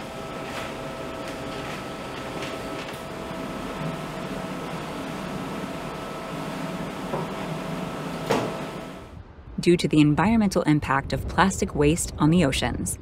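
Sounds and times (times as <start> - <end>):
machinery humming: 0.0 - 9.2.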